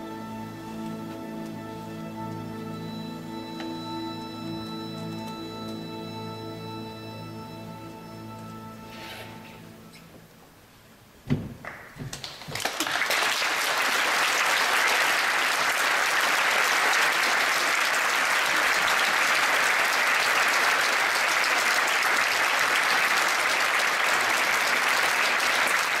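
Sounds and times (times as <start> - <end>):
audience applauding: 11.6 - 26.0.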